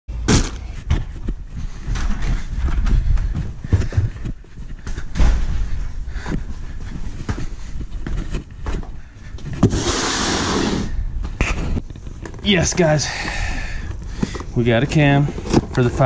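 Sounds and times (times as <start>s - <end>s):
footsteps: 0.1s - 16.0s.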